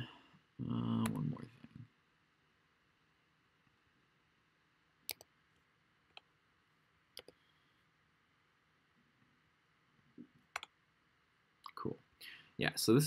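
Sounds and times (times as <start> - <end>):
faint room hiss: 0.0 - 13.0
computer mouse clicking: 5.1 - 5.3, 7.2 - 7.4, 10.5 - 10.8.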